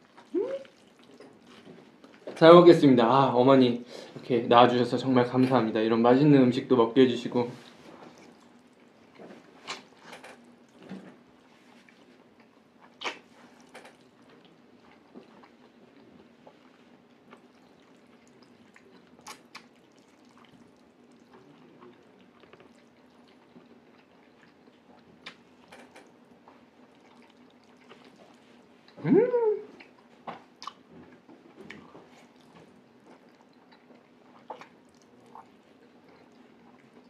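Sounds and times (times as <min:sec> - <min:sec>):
person slurping and chewing noodles: 0:00.0 - 0:02.2, 0:12.8 - 0:25.4, 0:26.6 - 0:28.7, 0:32.1 - 0:37.0
faint low hum: 0:00.0 - 0:37.0.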